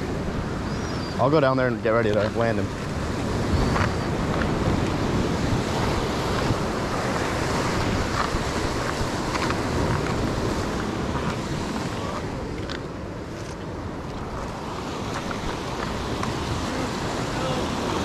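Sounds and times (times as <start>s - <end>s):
ocean surf rushing: 0.0s - 18.0s
wind buffeting the microphone: 0.0s - 18.0s.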